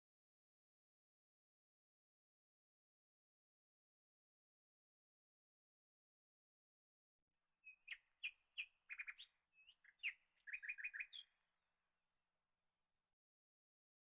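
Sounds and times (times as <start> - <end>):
bird chirping: 7.6 - 11.4.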